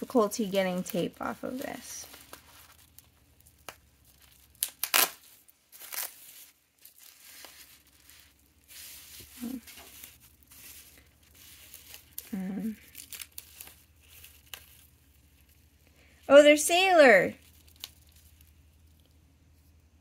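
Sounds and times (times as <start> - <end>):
plastic wrap crinkling: 0.0 - 19.8
sticky tape ripping: 0.9 - 14.9, 17.4 - 19.1.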